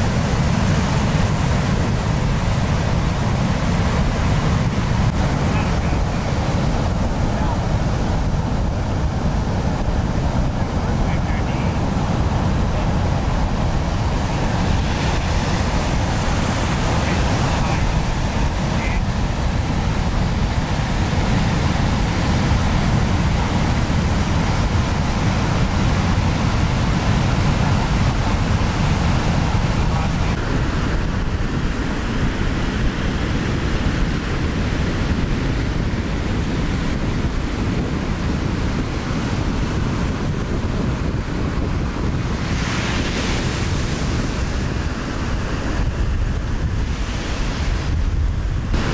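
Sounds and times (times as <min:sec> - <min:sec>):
ocean waves breaking: 0:00.0 - 0:48.9
wind rumbling on microphone: 0:00.0 - 0:48.9.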